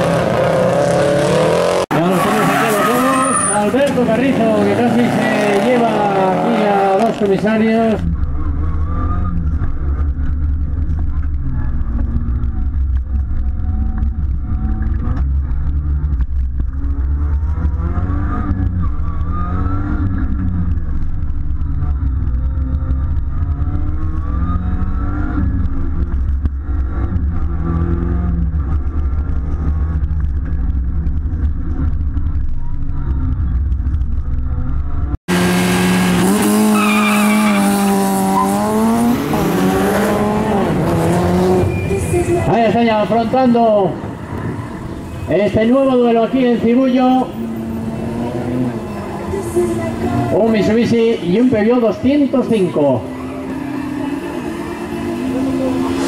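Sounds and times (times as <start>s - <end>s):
rally car engine revving: 0.0s - 56.0s
tyre squeal: 2.0s - 3.9s, 36.4s - 38.8s, 41.5s - 42.6s.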